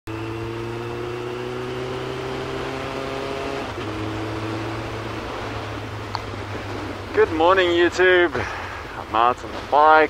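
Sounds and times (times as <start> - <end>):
motorcycle engine running: 0.1 - 7.6
wind and road noise: 0.1 - 10.0.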